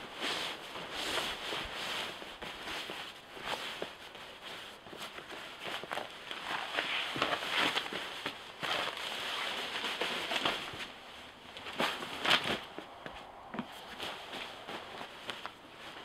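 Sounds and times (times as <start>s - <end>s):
sleeping bag rustling: 0.0s - 16.0s
footsteps on wooden decking: 10.6s - 16.0s.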